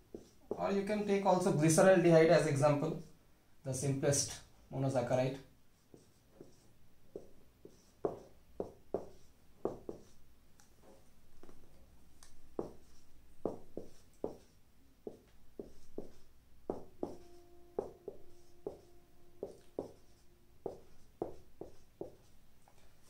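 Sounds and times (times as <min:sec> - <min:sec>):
marker writing on whiteboard: 0:00.0 - 0:00.9, 0:05.8 - 0:10.2, 0:10.8 - 0:11.6, 0:12.2 - 0:22.3.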